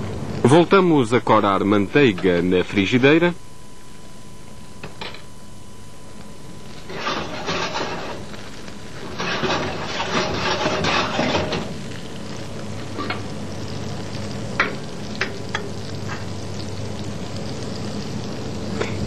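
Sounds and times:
butter sizzling in frying pan: 6.3s - 19.0s.

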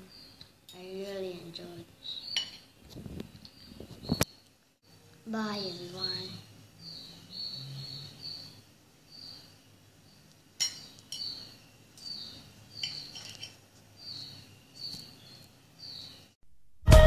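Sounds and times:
cutlery scraping on a ceramic plate: 12.8s - 13.6s.

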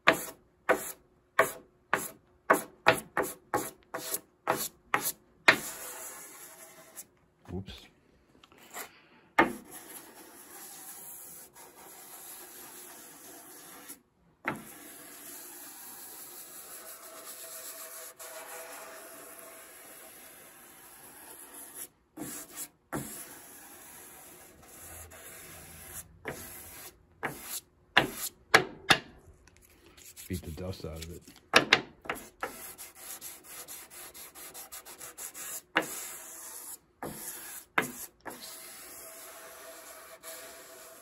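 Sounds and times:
sandpaper rubbing on wood: 9.6s - 14.0s, 14.6s - 28.3s, 30.0s - 31.1s, 32.2s - 41.0s.

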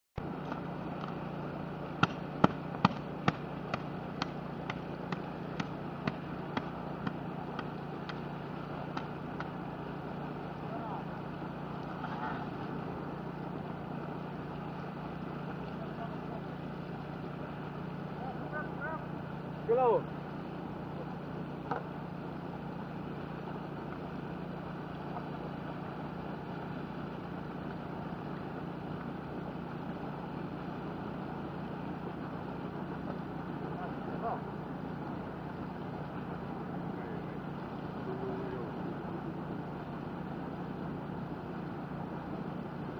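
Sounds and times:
low hum: 0.2s - 42.9s
sharp pops: 2.0s - 8.3s, 8.9s - 9.6s.

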